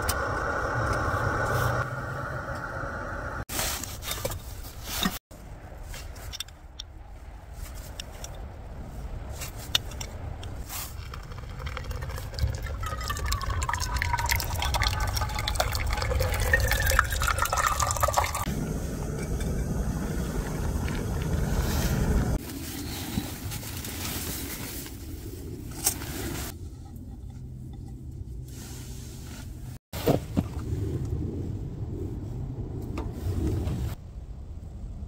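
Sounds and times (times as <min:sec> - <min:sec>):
water pouring into coffee filter: 0:11.0 - 0:18.5.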